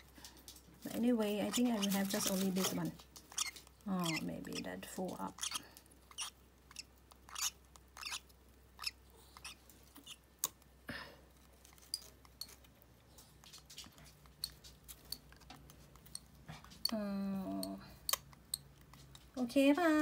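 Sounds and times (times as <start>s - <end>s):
bird chick beak clicking: 3.3s - 10.6s.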